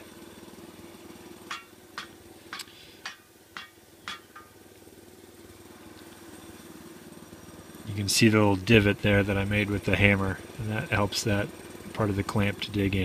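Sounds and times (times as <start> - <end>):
bandsaw mill engine idling: 0.0 - 13.0
hand tool knocking on log: 1.5 - 4.6.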